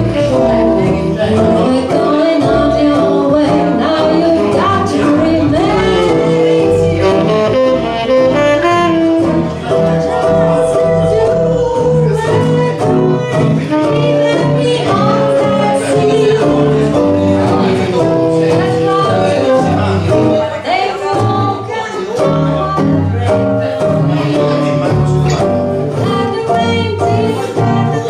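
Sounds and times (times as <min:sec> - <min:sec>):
ukulele: 0:00.0 - 0:07.3, 0:09.1 - 0:28.0
saxophone melody: 0:00.0 - 0:20.9
double bass: 0:00.0 - 0:28.0
guitar: 0:00.0 - 0:28.0.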